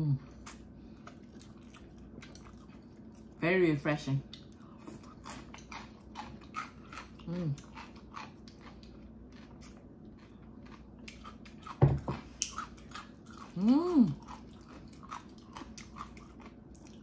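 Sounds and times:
person humming mmm: 0:07.2 - 0:07.7, 0:13.5 - 0:14.3.

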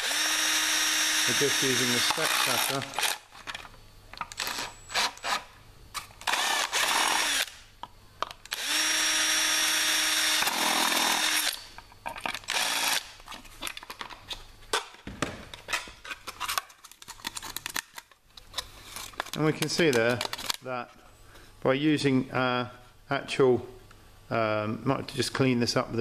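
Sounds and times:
cordless drill boring plastic: 0:00.0 - 0:03.3, 0:04.3 - 0:05.4, 0:06.2 - 0:07.6, 0:08.5 - 0:11.6, 0:12.4 - 0:13.1.

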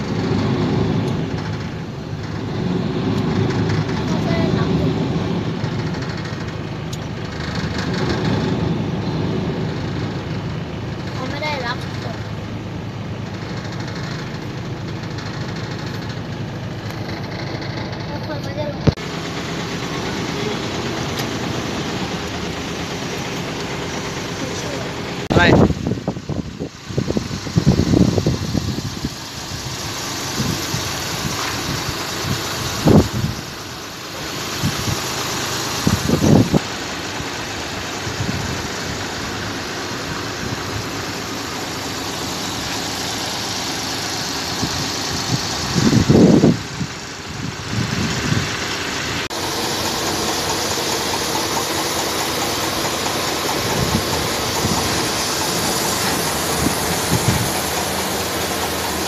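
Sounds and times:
heavy diesel engine rumbling: 0:00.0 - 0:59.0.

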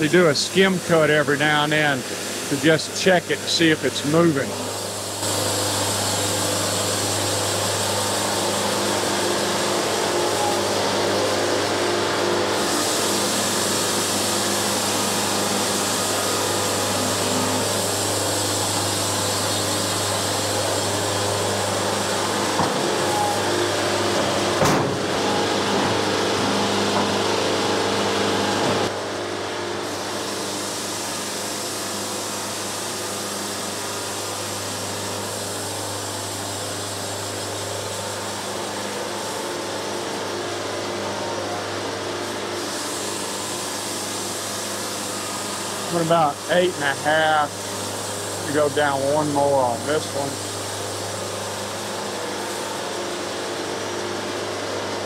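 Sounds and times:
band sawmill running: 0:00.0 - 0:55.0.

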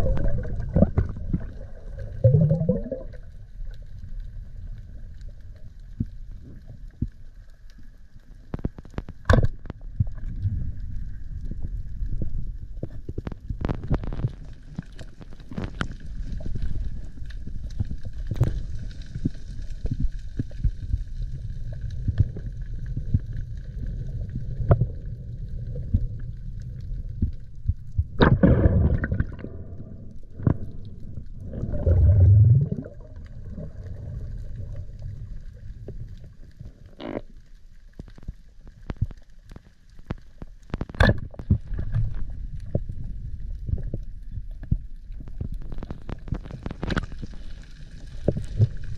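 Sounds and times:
gurgling water bursts: 0:00.0 - 0:03.3, 0:28.1 - 0:35.7
steady low underwater rumble: 0:00.0 - 0:48.9.

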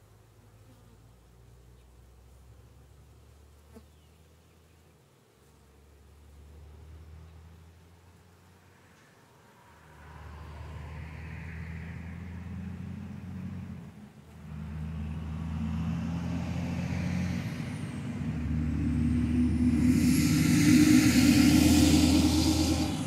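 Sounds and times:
vehicle engine hum: 0:06.1 - 0:09.0, 0:09.6 - 0:23.0.

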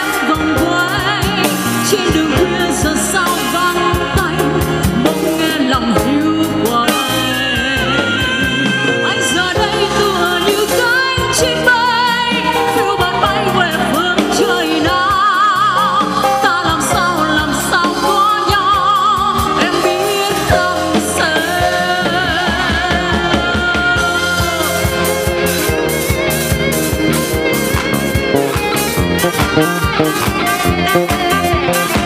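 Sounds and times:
woman singing a slow ballad: 0:00.0 - 0:25.5
live band playing: 0:00.0 - 0:32.0.

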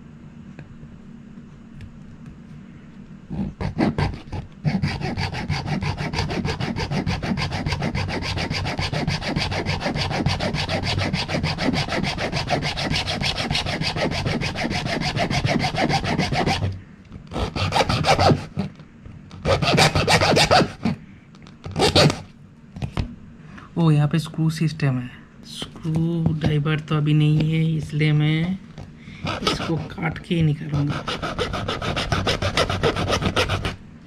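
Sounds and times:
hacksaw sawing: 0:03.5 - 0:18.7, 0:19.4 - 0:21.0, 0:21.7 - 0:22.3, 0:29.2 - 0:30.1, 0:30.7 - 0:33.8.

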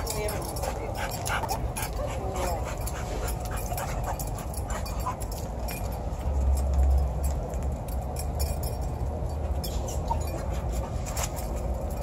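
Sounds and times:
dog whining: 0:09.6 - 0:10.9.

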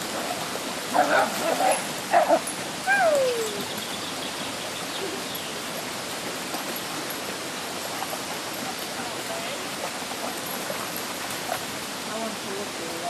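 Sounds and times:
stream babbling: 0:00.0 - 0:13.0
dog whining: 0:02.1 - 0:03.7.

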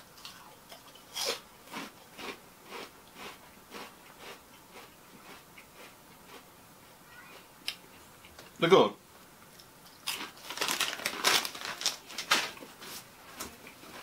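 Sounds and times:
crisps being chewed: 0:00.0 - 0:06.5, 0:09.5 - 0:12.8.

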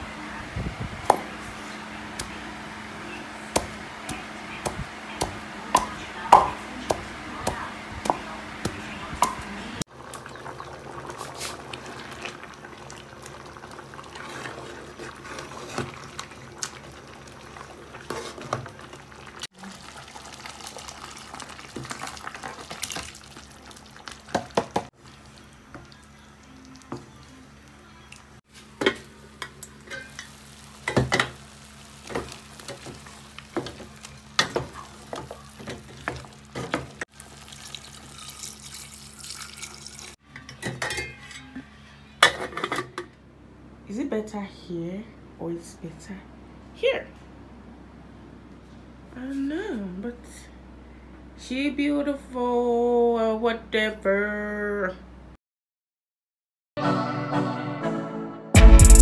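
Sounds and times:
water pouring into pot: 0:18.8 - 0:24.4, 0:37.1 - 0:40.2
utensils clinking against pot: 0:28.8 - 0:31.4, 0:40.3 - 0:41.6.

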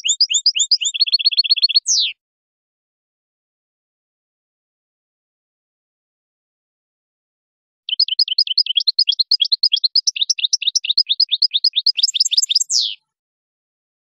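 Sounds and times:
goldfinch singing: 0:00.0 - 0:02.2, 0:07.9 - 0:13.0.

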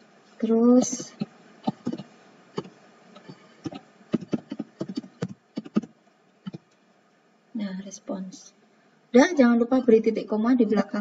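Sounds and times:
keyboard typing: 0:00.8 - 0:05.9.

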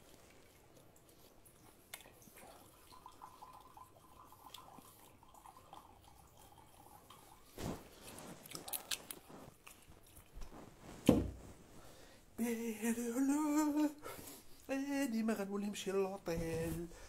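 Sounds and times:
man humming: 0:12.4 - 0:14.0.

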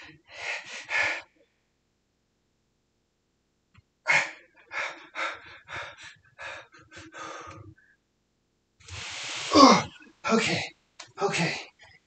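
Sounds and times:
man breathing hard: 0:00.0 - 0:01.3, 0:04.1 - 0:07.9.

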